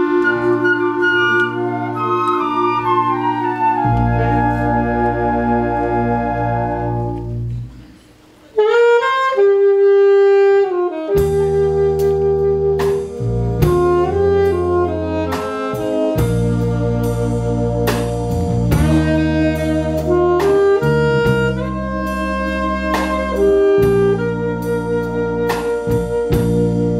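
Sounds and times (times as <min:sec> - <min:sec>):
saxophones playing melody: 0:00.0 - 0:07.7, 0:08.5 - 0:26.9
concert wind band playing: 0:00.0 - 0:26.9
bass and percussion hits: 0:11.2 - 0:26.9.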